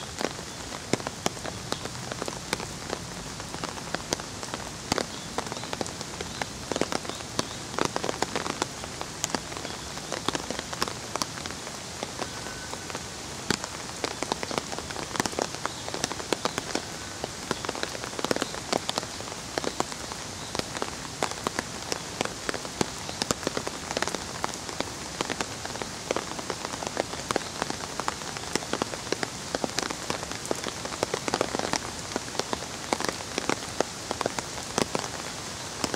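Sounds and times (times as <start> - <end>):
close raindrops ticking: 0.0 - 35.9
steady rainfall: 0.0 - 35.9.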